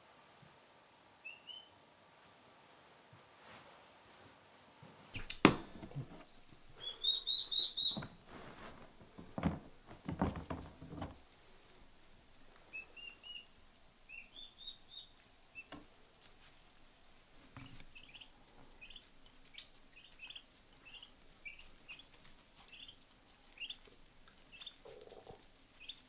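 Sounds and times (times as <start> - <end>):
poults peeping: 1.2 - 1.7, 5.2 - 8.8, 12.6 - 15.9, 17.6 - 26.0
plastic pet carrier knocks and rattles: 9.1 - 11.2.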